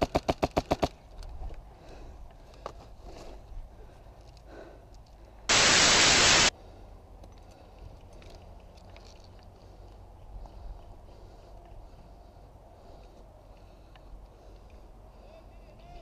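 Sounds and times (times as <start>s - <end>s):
faint outdoor background noise: 0.0s - 16.0s
harsh static burst: 5.5s - 6.5s.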